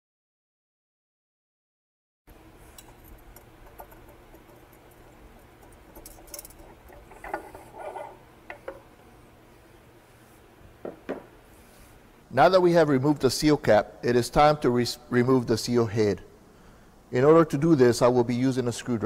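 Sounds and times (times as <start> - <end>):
metal scraping: 2.6 - 8.6.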